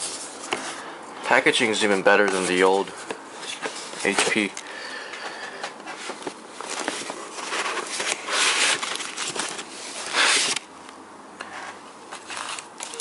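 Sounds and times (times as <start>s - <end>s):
cardboard rustling and scraping: 0.0s - 0.8s, 2.0s - 4.5s, 5.8s - 10.7s, 11.5s - 13.0s.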